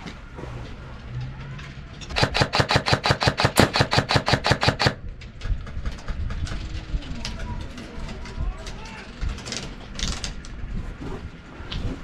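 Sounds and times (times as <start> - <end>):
airsoft gun rapid fire: 2.1 - 6.4.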